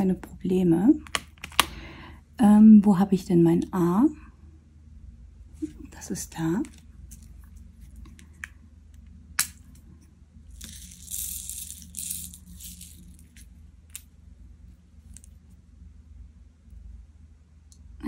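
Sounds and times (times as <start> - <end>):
small beads rattling: 10.5 - 14.1.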